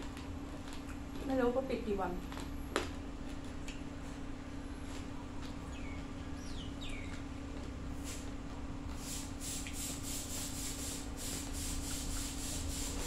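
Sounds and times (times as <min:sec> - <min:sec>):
chewing crunchy food: 0:00.0 - 0:01.4, 0:02.1 - 0:06.1, 0:06.7 - 0:09.0.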